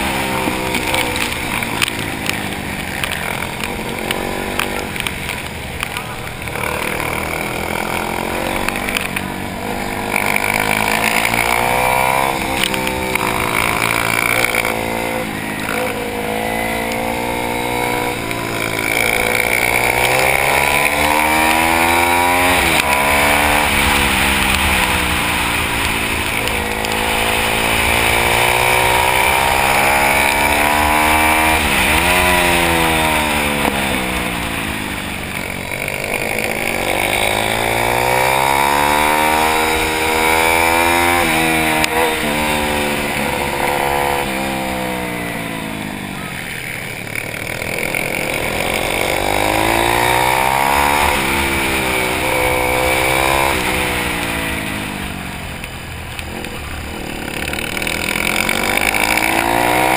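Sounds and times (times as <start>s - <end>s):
motorbike engine revving: 0.0s - 59.9s.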